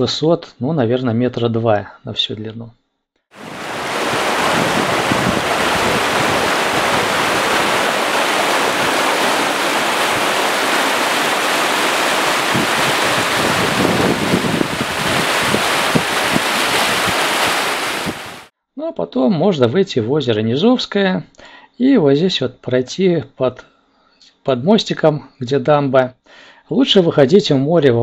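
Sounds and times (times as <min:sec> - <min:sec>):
water rushing over rocks: 0:03.4 - 0:18.5.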